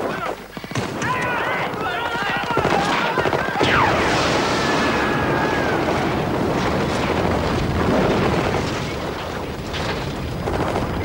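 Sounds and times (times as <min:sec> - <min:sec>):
fire burning: 0:00.4 - 0:11.0
sharp bangs: 0:00.6 - 0:11.0
large explosion blast: 0:03.5 - 0:11.0.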